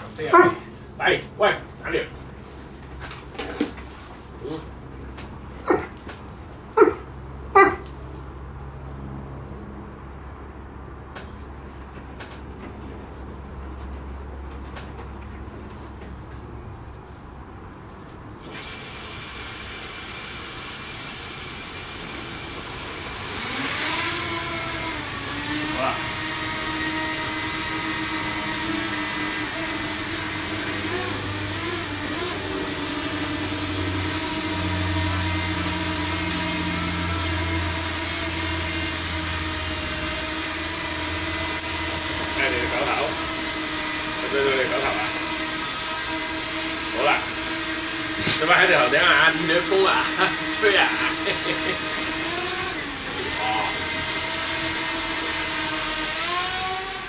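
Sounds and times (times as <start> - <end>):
dog barking: 0.2 - 0.7, 5.6 - 6.0, 6.8 - 7.9
hiss: 18.5 - 22.8
motor whining: 23.2 - 57.0.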